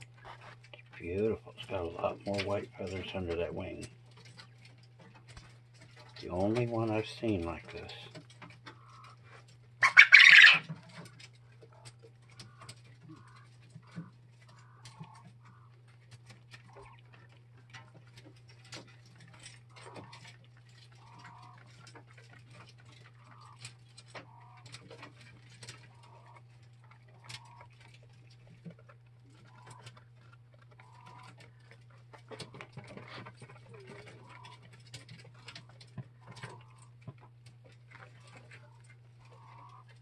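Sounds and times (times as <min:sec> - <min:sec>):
birds tapping on wire cage: 0:00.0 - 0:40.0
steady low hum: 0:00.0 - 0:40.0
quail soft short calls: 0:09.8 - 0:10.7, 0:38.6 - 0:39.9.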